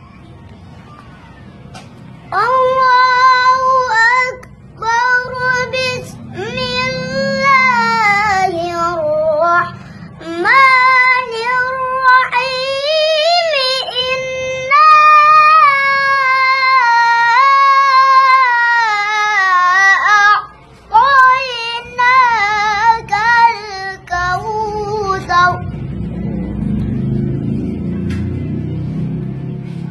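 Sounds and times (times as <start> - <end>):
boy chanting melodically: 2.3 - 25.8.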